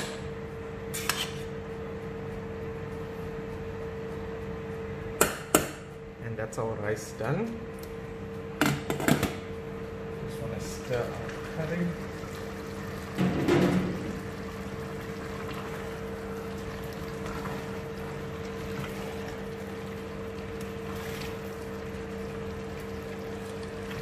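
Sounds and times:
induction cooktop hum: 0.0 - 24.0
wooden spoon stirring in a pot: 14.7 - 24.0.

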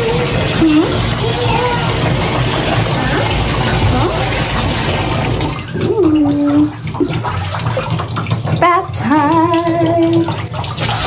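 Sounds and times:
water running into bathtub: 0.0 - 11.0
woman singing: 8.6 - 10.3.

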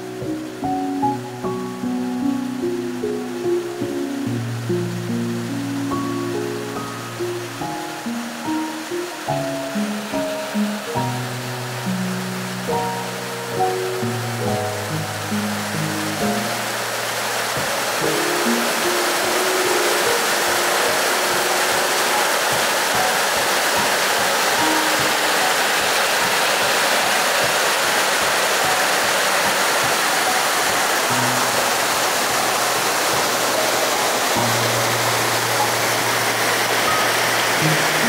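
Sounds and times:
soft background music: 0.0 - 38.0
stream water running over rocks: 0.0 - 38.0.

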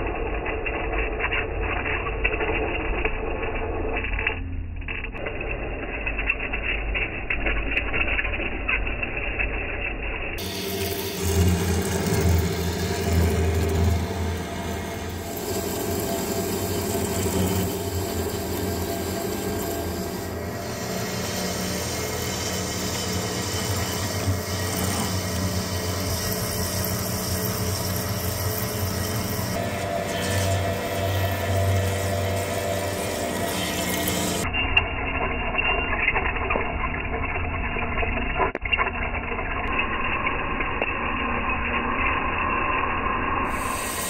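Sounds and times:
low motor hum: 10.4 - 34.6
lathe cutting steel: 10.4 - 35.3, 43.4 - 44.0.

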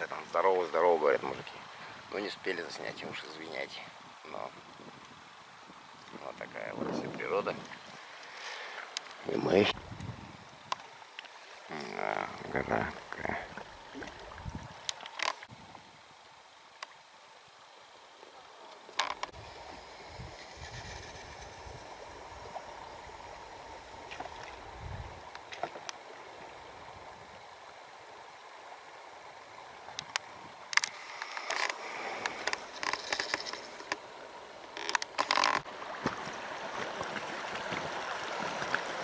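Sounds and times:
river water running: 0.0 - 39.0
boat knocking and splashing: 34.8 - 39.0.

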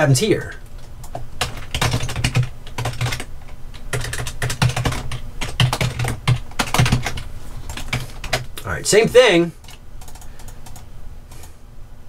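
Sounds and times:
typing on computer keyboard: 1.0 - 8.5, 9.6 - 10.8.

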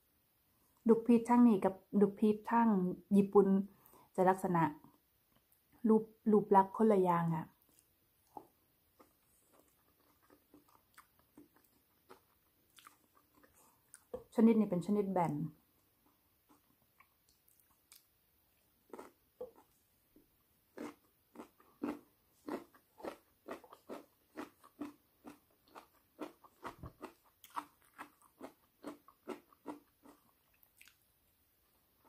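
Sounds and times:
biting and chewing fruit: 7.6 - 14.3, 16.0 - 19.9, 20.7 - 31.0.

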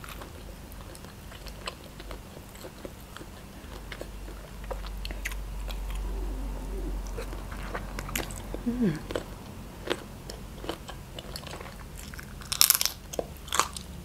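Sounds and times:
person chewing wetly: 0.0 - 14.0
person humming briefly: 6.0 - 7.4, 8.6 - 9.2.

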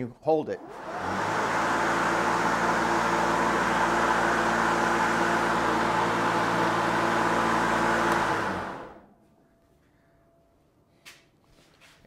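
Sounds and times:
electric lawn mower humming: 0.6 - 9.1.

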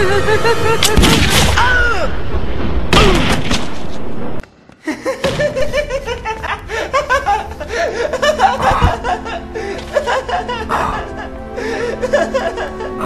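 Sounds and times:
man laughing hysterically: 0.0 - 1.1, 4.8 - 13.0
low background music: 0.0 - 1.6, 5.6 - 13.0.

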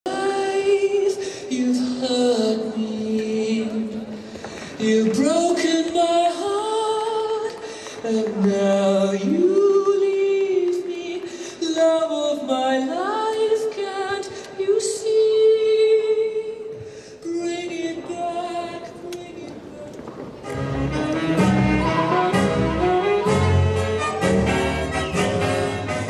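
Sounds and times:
slow dance music: 0.1 - 26.0.

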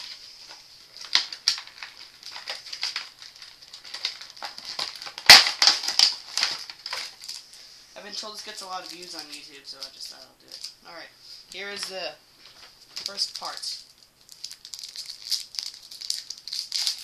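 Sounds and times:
plastic packaging crinkling: 0.0 - 10.9, 11.6 - 17.0.

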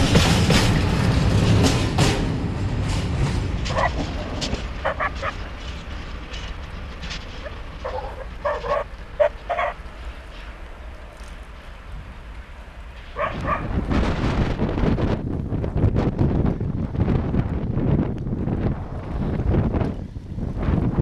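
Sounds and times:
freight train wheels rumbling: 0.0 - 21.0
dog barking: 3.7 - 4.0, 4.8 - 5.4, 7.4 - 9.8, 13.2 - 13.7.

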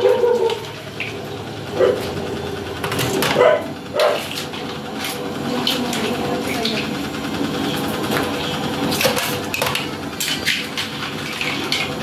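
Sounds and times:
dog barking: 0.0 - 0.6, 1.8 - 2.0, 3.4 - 4.2
steady background hum: 0.0 - 12.0.

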